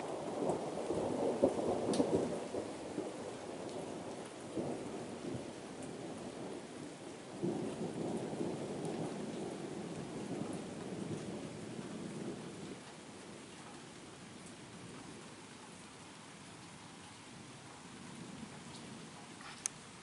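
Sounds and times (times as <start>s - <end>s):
thunder rumbling: 0.0s - 13.2s
steady rain: 0.0s - 20.0s.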